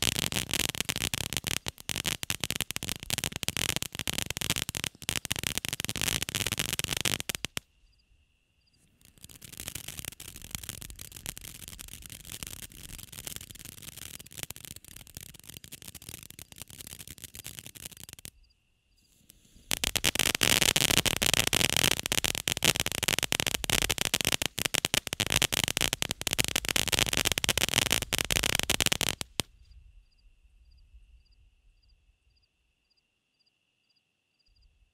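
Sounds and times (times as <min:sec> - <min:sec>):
firework fountain crackling: 0:00.0 - 0:07.6, 0:08.8 - 0:18.3, 0:19.2 - 0:29.5.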